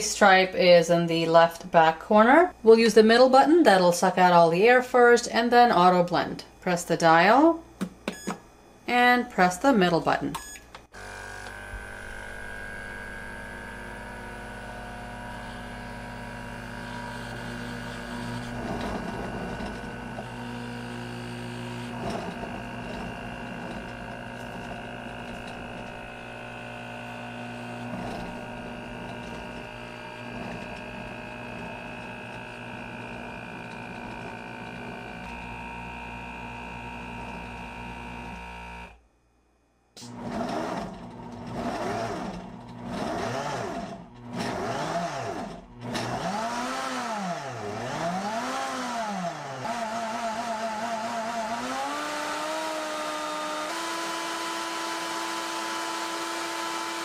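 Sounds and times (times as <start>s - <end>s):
vacuum pump hum: 6.5s - 39.0s
blender motor running: 10.9s - 39.0s, 40.0s - 57.0s.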